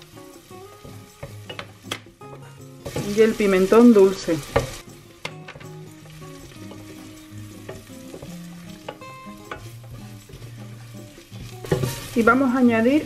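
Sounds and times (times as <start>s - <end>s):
onions sizzling in oil: 0.0s - 13.0s
soft background music: 0.0s - 13.0s
spoon knocking against pot: 1.2s - 2.0s.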